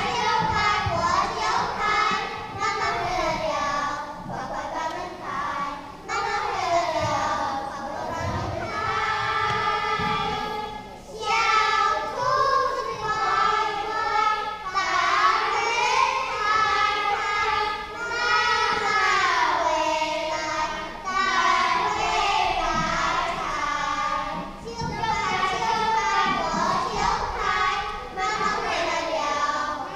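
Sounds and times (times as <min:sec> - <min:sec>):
young children singing: 0:00.0 - 0:29.9.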